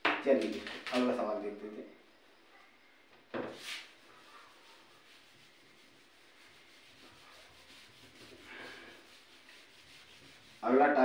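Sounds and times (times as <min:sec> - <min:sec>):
eraser rubbing on whiteboard: 0:03.5 - 0:11.0.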